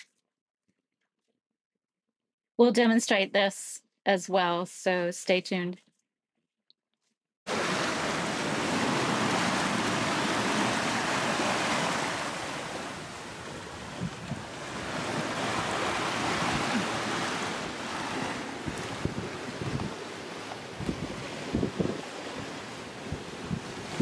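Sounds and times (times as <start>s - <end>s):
water rushing past a hull: 7.5s - 24.0s
wind buffeting microphone: 8.0s - 24.0s.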